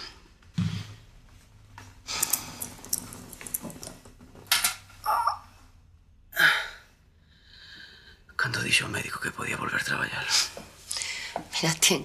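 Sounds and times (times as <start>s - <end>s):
clothes and cushions rustling: 0.4s - 4.5s.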